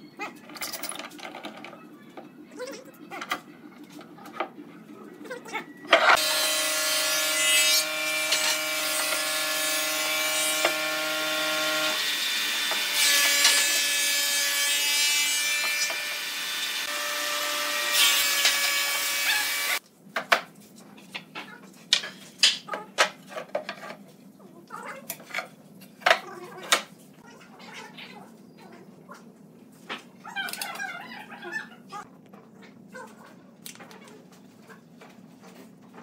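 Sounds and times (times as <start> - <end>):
electric power tool running: 6.1 - 13.6, 15.8 - 19.8.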